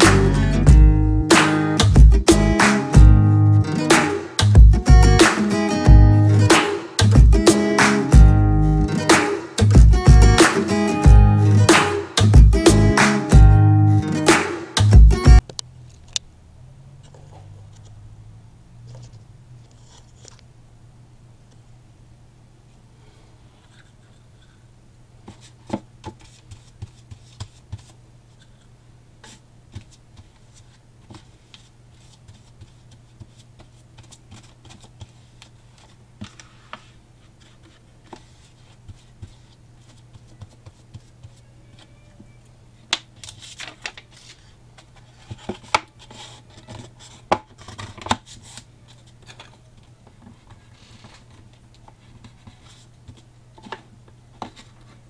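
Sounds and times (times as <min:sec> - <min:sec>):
paper rustles: 0:18.9 - 0:20.4, 0:25.2 - 0:28.6, 0:29.2 - 0:42.0, 0:43.2 - 0:55.0
hands handling cardstock: 0:25.2 - 0:55.0.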